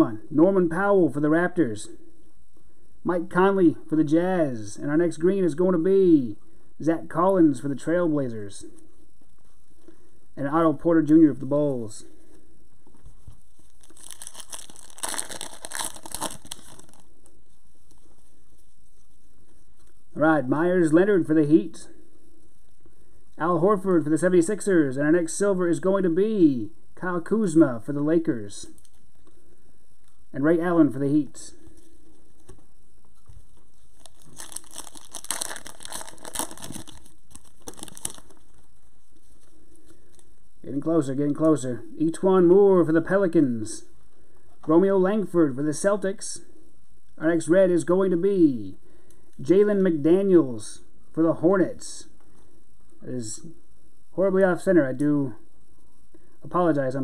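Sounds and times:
crinkly plastic rustling: 0:13.1 - 0:17.1, 0:33.2 - 0:40.3.

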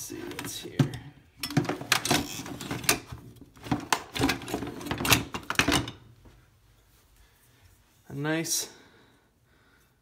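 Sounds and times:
metal tools clattering in toolbox: 0:00.3 - 0:06.0.

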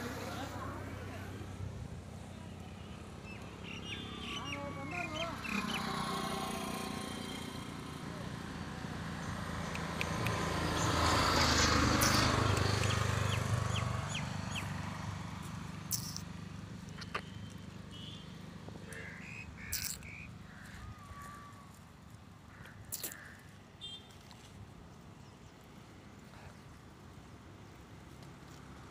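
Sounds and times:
passing road vehicle: 0:00.0 - 0:28.9
bird calls and chirps: 0:02.7 - 0:06.0, 0:09.6 - 0:14.8, 0:15.9 - 0:16.3, 0:16.9 - 0:18.3, 0:18.9 - 0:21.8.

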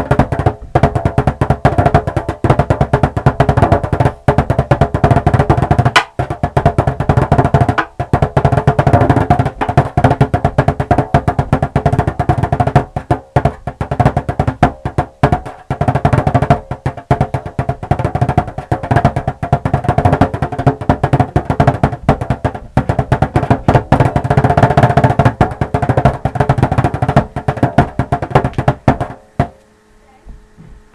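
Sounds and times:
frame drum playing fast strokes: 0:00.0 - 0:29.6.

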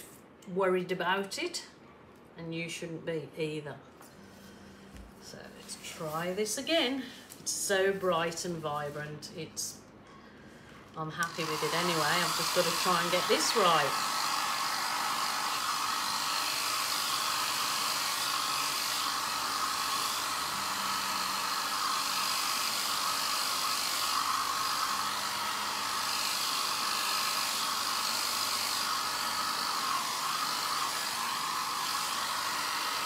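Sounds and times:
hair dryer running: 0:10.9 - 0:33.0.

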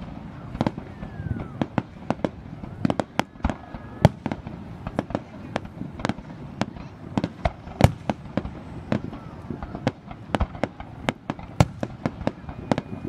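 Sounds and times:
fireworks bursting: 0:00.0 - 0:13.0.

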